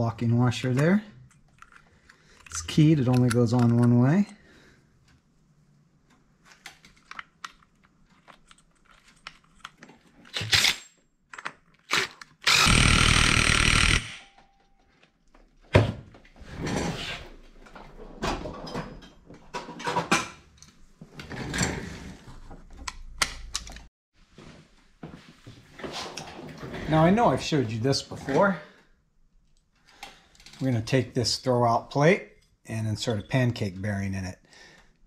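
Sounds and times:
clatter of tools and parts: 1.2 - 4.4, 6.4 - 15.5, 29.8 - 30.7
cordless power tool running: 12.5 - 14.2.

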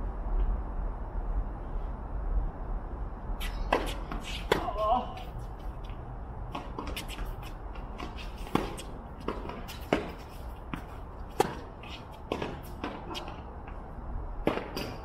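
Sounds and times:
shoes scuffing on court: 3.4 - 13.8
tennis ball impacts: 3.7 - 5.4, 6.5 - 13.4, 14.4 - 15.0.

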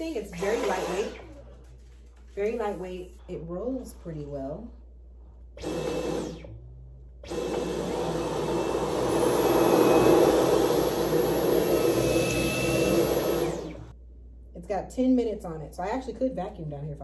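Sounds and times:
vacuum cleaner on carpet: 0.4 - 1.1, 7.3 - 13.9.

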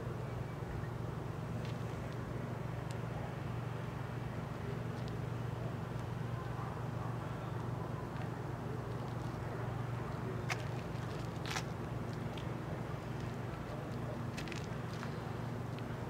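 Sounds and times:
faint ticks and crunches: 10.4 - 15.9.

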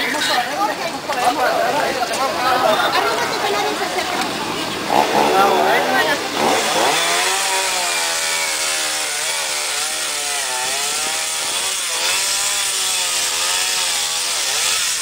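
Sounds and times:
chainsaw cutting branches: 3.0 - 15.0.

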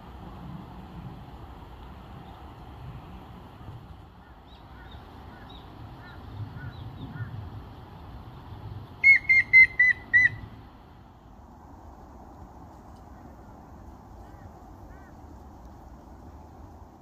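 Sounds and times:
woodpecker whistled song: 9.0 - 10.4.

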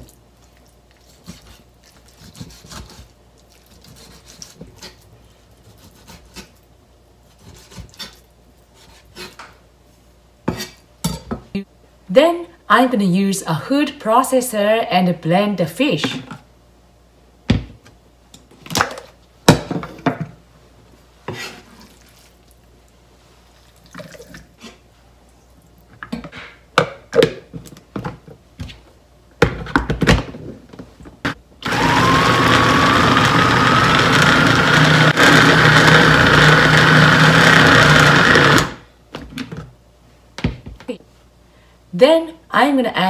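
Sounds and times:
food chopper motor whine: 31.6 - 38.8.

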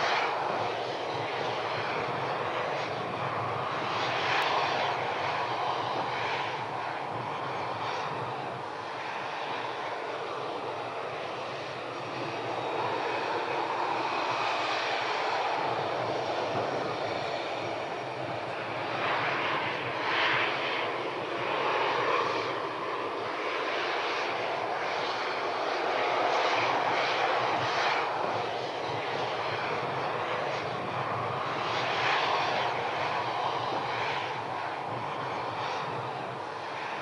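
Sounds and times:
airplane engine drone: 0.0 - 37.0.

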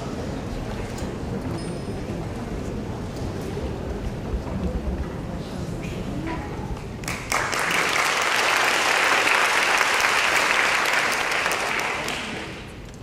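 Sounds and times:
audience applauding: 7.0 - 12.7.

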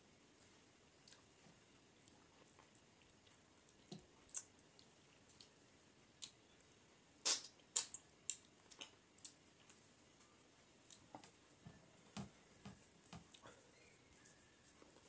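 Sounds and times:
lip smacks and chewing: 1.0 - 1.3.

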